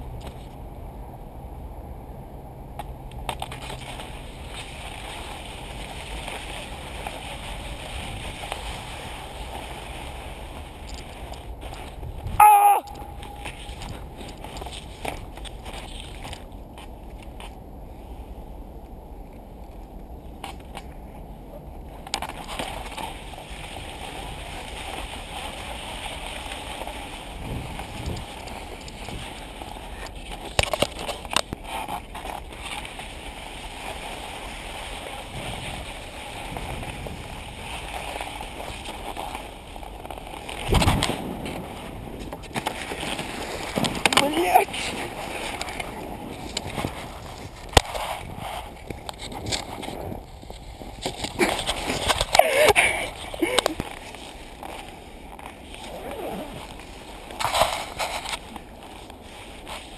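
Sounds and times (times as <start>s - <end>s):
skis gliding over snow: 0.0s - 0.8s, 2.8s - 59.9s
wind on microphone: 3.8s - 15.4s, 27.2s - 30.1s, 35.0s - 38.9s, 39.8s - 54.0s.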